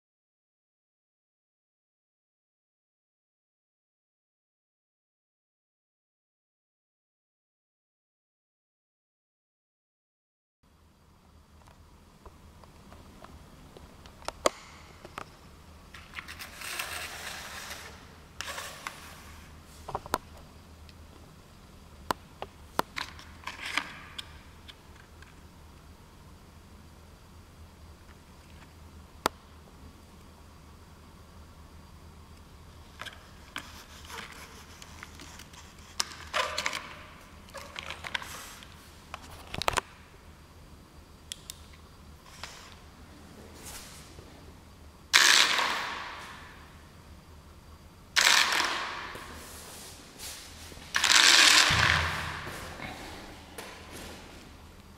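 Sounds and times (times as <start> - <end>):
sharp clicks: 41.3 - 41.8.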